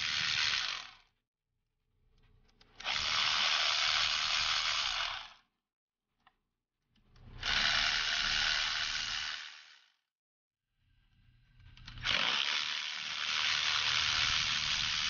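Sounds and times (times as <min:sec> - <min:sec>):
power ratchet running: 0:00.0 - 0:01.0, 0:02.8 - 0:05.4, 0:07.3 - 0:10.0, 0:11.8 - 0:15.0.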